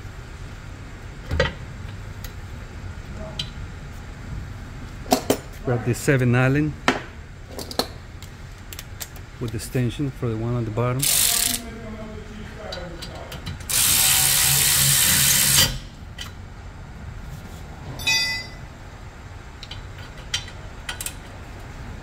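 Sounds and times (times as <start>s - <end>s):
electric ratchet running: 11.0s - 11.7s, 13.6s - 15.9s.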